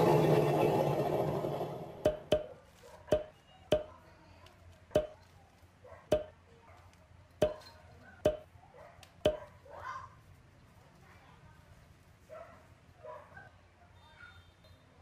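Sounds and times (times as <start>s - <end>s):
plastic toys knocking on tabletop: 2.0s - 2.5s, 3.1s - 4.0s, 5.0s - 5.2s.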